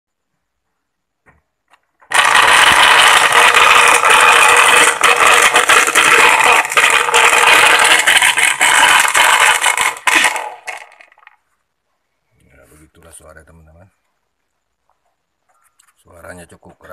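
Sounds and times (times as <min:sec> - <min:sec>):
blender grinding loudly: 0:02.1 - 0:11.3.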